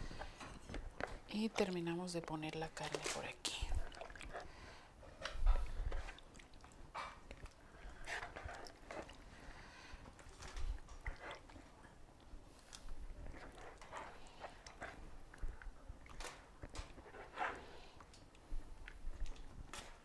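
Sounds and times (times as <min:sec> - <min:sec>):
wet meat squishing: 0:03.7 - 0:09.4.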